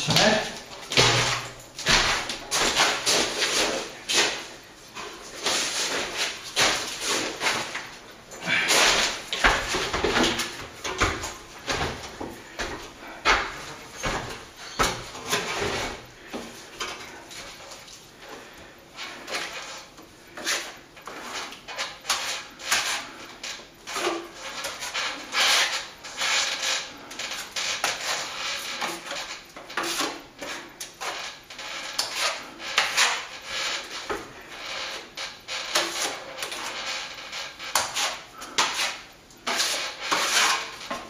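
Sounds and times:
knife scraping adhesive on concrete: 19.2s - 41.0s.

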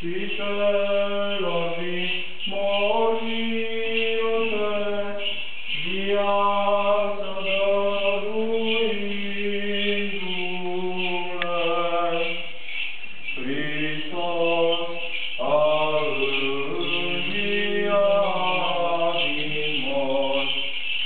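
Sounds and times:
person chanting: 0.0s - 21.0s.

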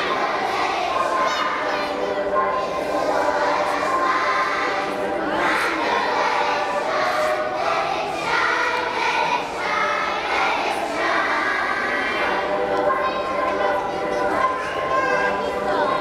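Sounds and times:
children's choir singing: 0.0s - 16.0s.

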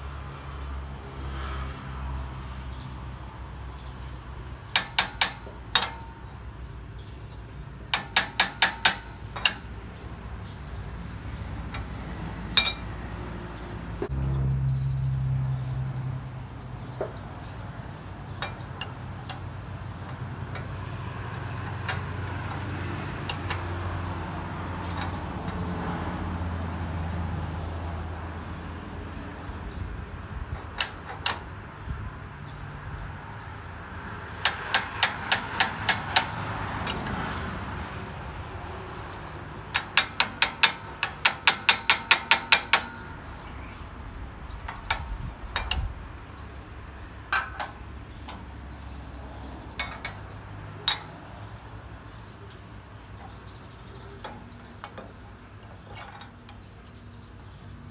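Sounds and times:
metal-on-metal clicks: 4.6s - 6.5s, 7.2s - 9.9s, 11.3s - 13.0s, 18.0s - 25.8s, 30.5s - 31.6s, 34.4s - 37.3s, 39.1s - 57.2s.

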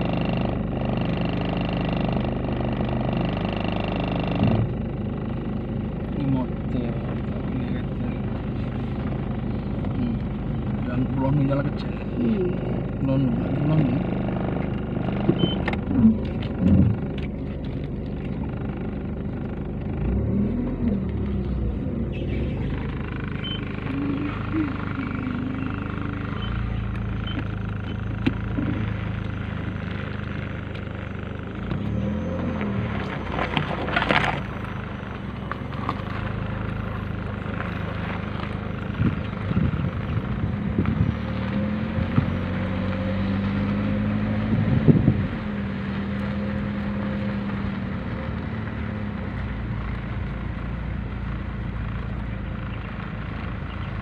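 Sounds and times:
vehicle engine and road noise: 0.0s - 54.0s
rattles and knocks from bumps: 14.6s - 19.0s.

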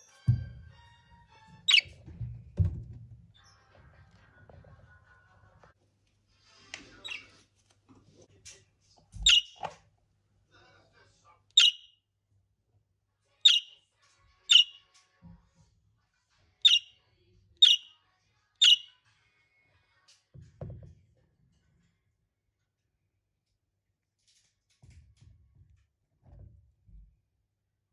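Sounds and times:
small animal high chirps: 1.7s - 1.9s, 9.2s - 9.6s, 11.6s - 11.9s, 13.4s - 13.8s, 14.5s - 14.8s, 16.6s - 17.0s, 17.6s - 18.0s, 18.6s - 19.0s.

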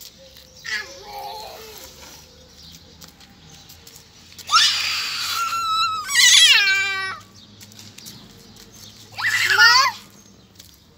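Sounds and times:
loud high-pitched cries: 0.6s - 1.9s, 4.4s - 7.3s, 9.1s - 10.0s.

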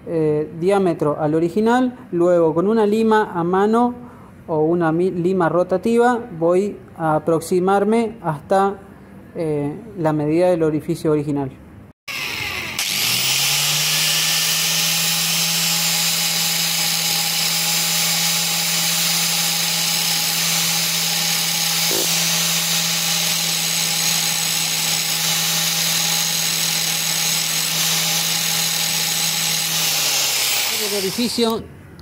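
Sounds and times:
angle grinder grinding metal: 12.1s - 31.6s.

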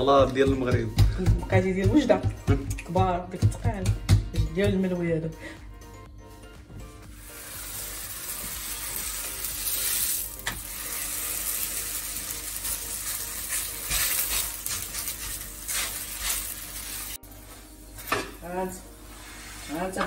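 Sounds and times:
dough sizzling in a frying pan: 7.1s - 20.0s.

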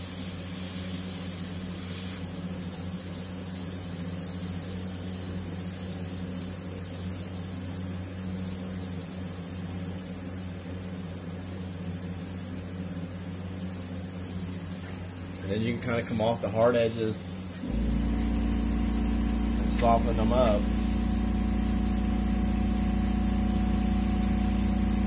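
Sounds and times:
airbrush hissing: 0.0s - 25.0s
low hum: 17.6s - 25.0s.

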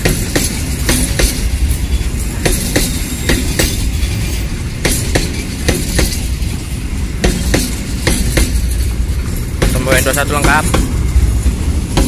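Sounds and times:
freight train rumbling past: 0.0s - 12.0s
wheel clacks on rail joints: 0.0s - 12.0s.

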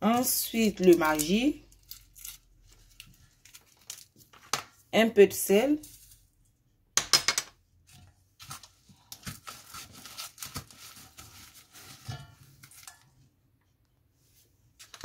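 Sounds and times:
gloved hand squishing paste in bowl: 7.8s - 13.3s.

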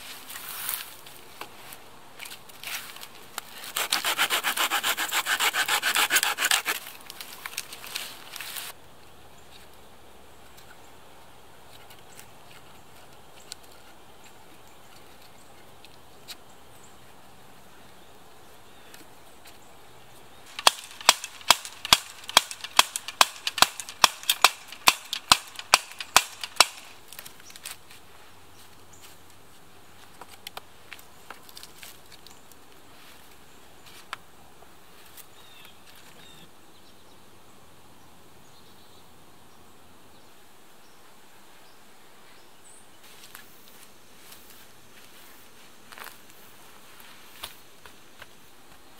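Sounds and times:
faint ticks and rustles: 10.4s - 18.0s
sharp wooden knocks: 20.5s - 26.9s.

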